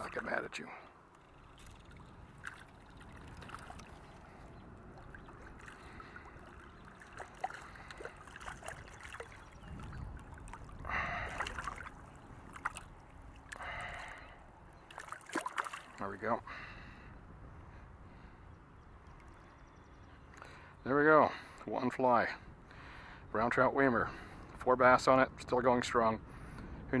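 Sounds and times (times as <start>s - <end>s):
river water splashing and trickling: 0.0s - 16.6s
fish splashing: 5.0s - 16.0s.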